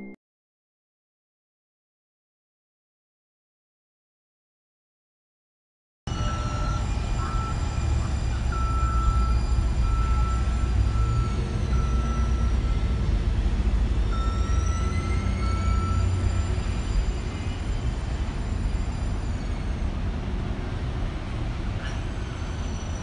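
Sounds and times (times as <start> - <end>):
tram rumbling on street track: 6.1 - 23.0.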